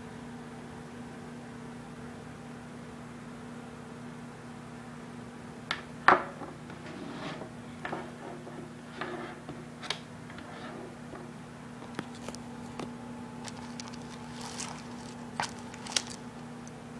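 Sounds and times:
steady low hum: 0:10.9 - 0:16.9.

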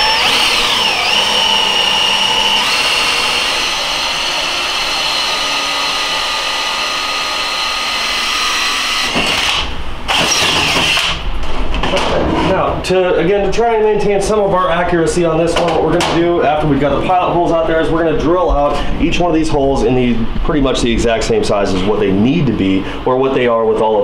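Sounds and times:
drill boring through metal: 0:00.0 - 0:11.2.

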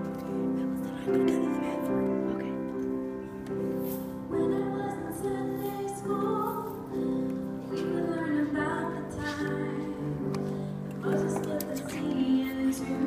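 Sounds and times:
grand piano accompaniment: 0:00.0 - 0:13.0
woman singing: 0:04.3 - 0:13.0.

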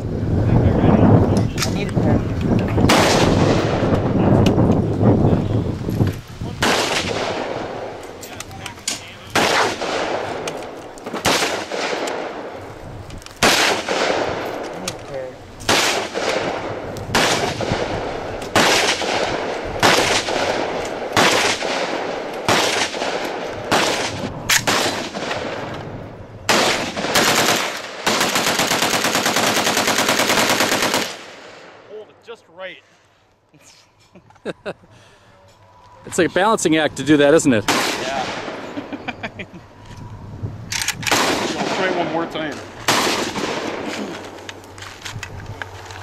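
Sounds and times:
automatic gunfire burst: 0:02.9 - 0:03.8, 0:06.6 - 0:07.5, 0:09.4 - 0:10.3, 0:13.4 - 0:14.3, 0:15.7 - 0:18.0, 0:18.6 - 0:25.6, 0:26.5 - 0:31.4
gunshots echoing: 0:02.9 - 0:04.0, 0:06.6 - 0:08.0, 0:09.3 - 0:12.6, 0:13.4 - 0:14.7, 0:15.7 - 0:25.9, 0:26.5 - 0:31.9, 0:37.6 - 0:38.8, 0:41.1 - 0:44.3.

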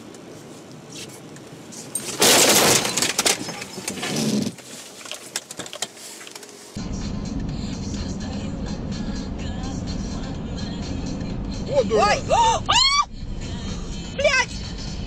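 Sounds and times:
car crash: 0:02.0 - 0:04.6
crunching and rattling: 0:02.0 - 0:06.6.

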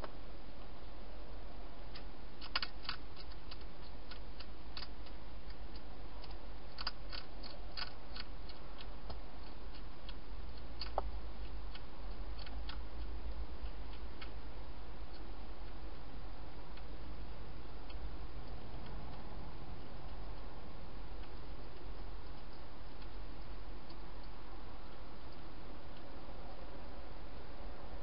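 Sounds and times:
low hum and hiss: 0:00.0 - 0:28.0
hedgehog crunching dry food: 0:01.9 - 0:24.3.

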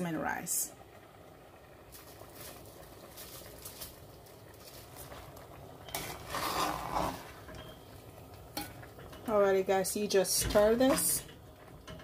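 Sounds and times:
metal spoon stirring pot: 0:04.6 - 0:12.0.

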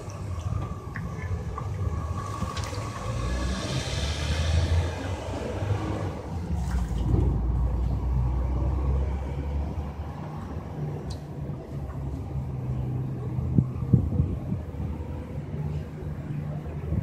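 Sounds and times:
pigeons splashing in water: 0:00.0 - 0:07.5
steady low rumble: 0:00.0 - 0:17.0.

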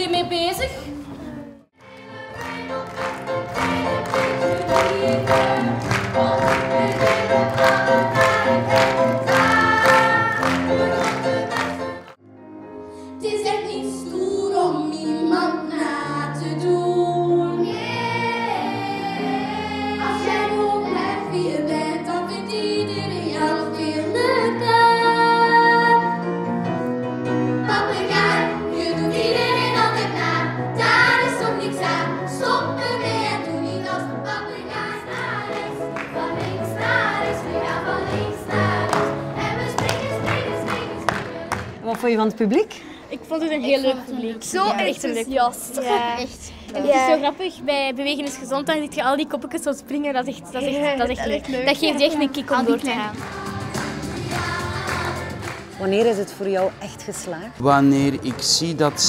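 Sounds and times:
children's choir singing: 0:01.8 - 0:12.2, 0:13.5 - 0:26.4, 0:27.5 - 0:41.7, 0:51.8 - 0:56.4, 0:57.9 - 0:59.0
instrumental accompaniment: 0:01.8 - 0:13.0, 0:52.4 - 0:59.0.

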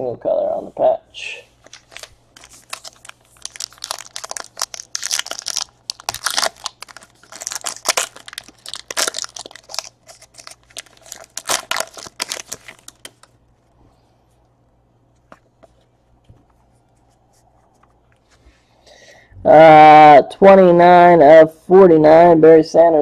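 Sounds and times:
foil wrapper tearing and crinkling: 0:01.6 - 0:13.4.

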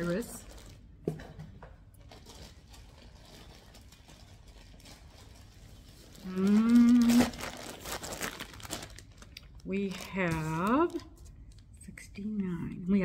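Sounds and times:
plastic bag crinkling: 0:00.0 - 0:01.0, 0:01.9 - 0:11.6
woman humming: 0:06.2 - 0:07.4.

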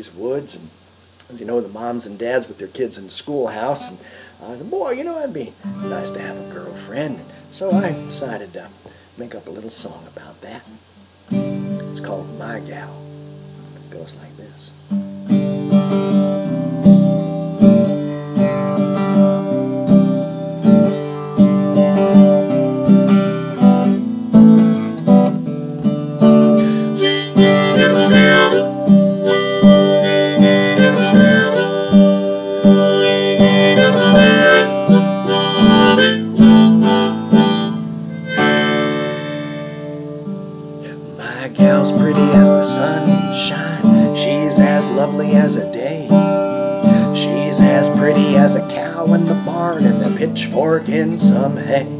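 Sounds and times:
acoustic guitar strumming: 0:01.4 - 0:10.0, 0:10.7 - 0:51.9
harmonica melody: 0:05.7 - 0:08.4, 0:15.5 - 0:50.4.

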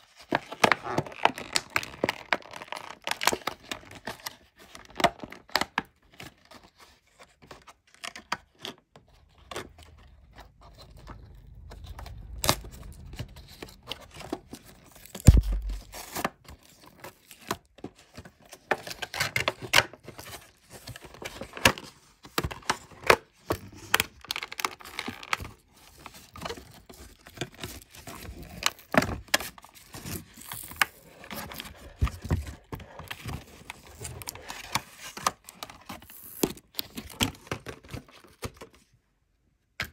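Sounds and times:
plastic packaging crinkling and tearing: 0:00.2 - 0:23.2, 0:23.8 - 0:38.8
loud thump: 0:15.2 - 0:16.0.

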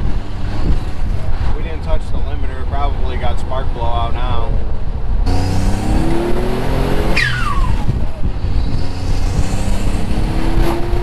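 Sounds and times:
car engine revving hard: 0:05.3 - 0:11.0
turbo whistle falling in pitch: 0:07.1 - 0:07.9.

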